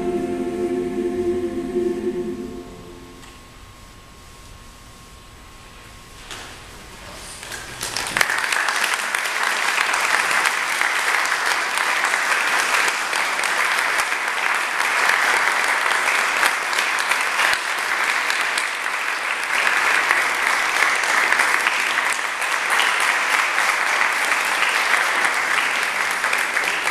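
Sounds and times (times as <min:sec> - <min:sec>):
audience applauding: 0:07.4 - 0:26.9.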